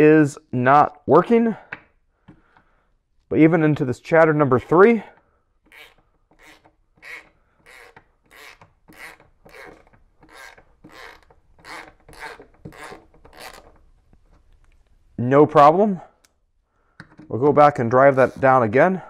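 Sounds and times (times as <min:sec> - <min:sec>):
hand ratchet rasping: 0:05.6 - 0:13.9.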